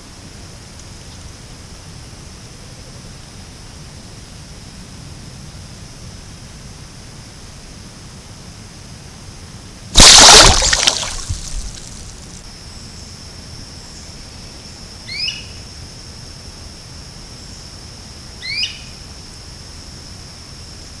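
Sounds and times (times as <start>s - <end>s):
loud water splash: 10.0s - 12.4s.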